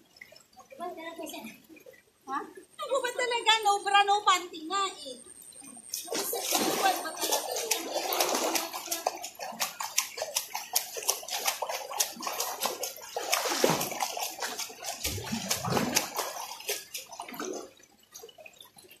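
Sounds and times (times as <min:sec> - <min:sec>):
swimmer splashing in river: 0:06.0 - 0:17.6.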